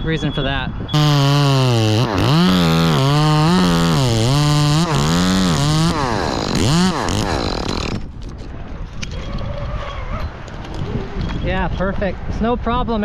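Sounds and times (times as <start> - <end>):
chainsaw cutting wood: 1.0 - 8.2.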